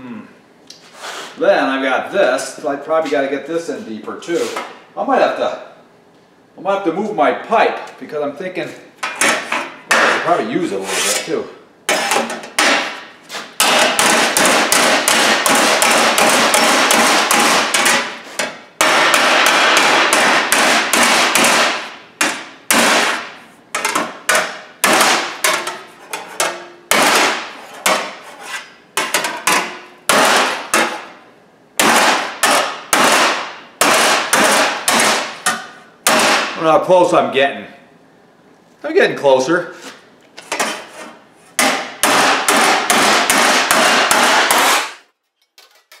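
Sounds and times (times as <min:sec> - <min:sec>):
hammer beating sheet steel: 0:11.9 - 0:28.2, 0:29.0 - 0:31.2, 0:31.8 - 0:36.6, 0:41.6 - 0:45.1.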